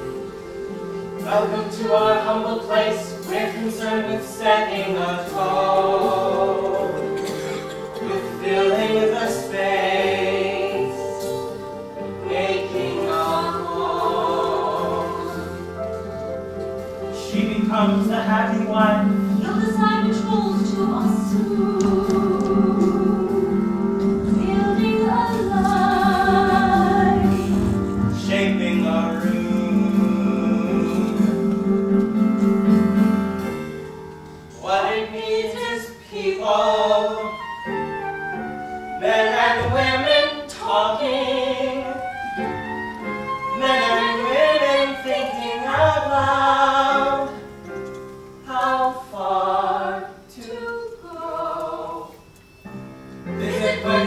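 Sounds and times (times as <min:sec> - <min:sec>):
instrumental accompaniment: 0:00.0 - 0:34.6, 0:36.5 - 0:48.7
person singing: 0:17.2 - 0:32.1.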